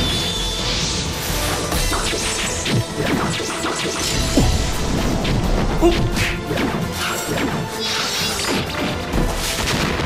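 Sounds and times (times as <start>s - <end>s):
dramatic music: 0.0s - 10.0s.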